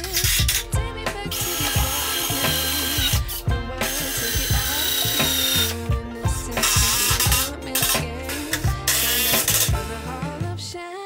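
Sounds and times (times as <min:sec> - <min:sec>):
cordless drill driving screws: 0:00.0 - 0:00.7, 0:01.3 - 0:05.9, 0:06.6 - 0:09.9
background music with steady beat: 0:00.0 - 0:11.0.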